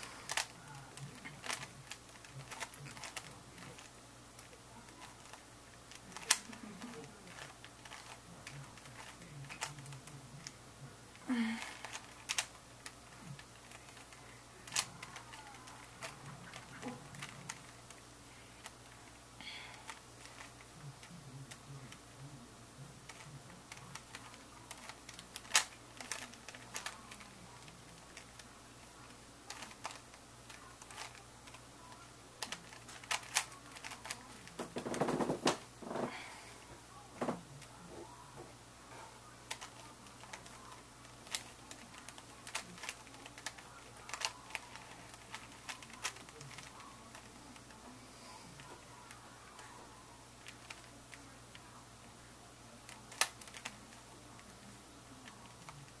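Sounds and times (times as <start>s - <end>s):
puzzle cube layers clicking: 1.4s - 3.9s, 4.9s - 10.0s, 23.1s - 27.3s, 32.4s - 34.5s, 39.5s - 47.3s, 52.9s - 53.8s.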